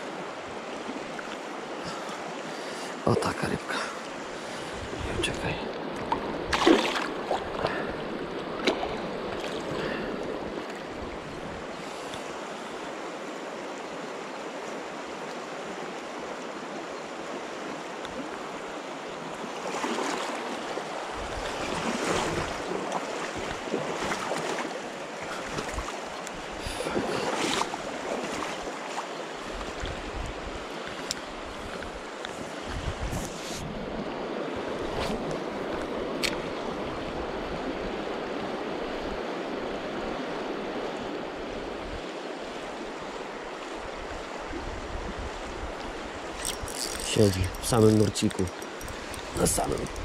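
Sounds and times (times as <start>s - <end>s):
river current flowing: 0.0s - 50.0s
wind buffeting microphone: 4.7s - 11.7s, 29.4s - 37.7s, 43.9s - 50.0s
splashing in water: 6.5s - 7.9s.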